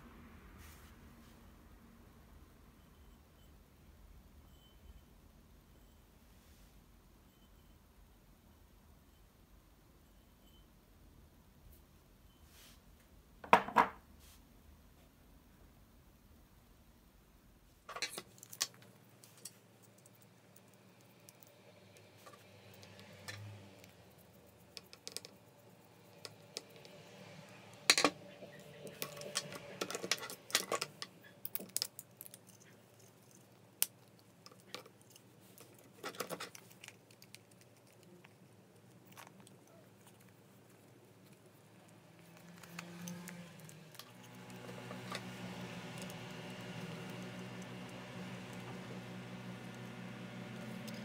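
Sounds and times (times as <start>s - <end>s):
small parts clicking and rattling: 17.9s - 27.0s, 27.9s - 47.8s.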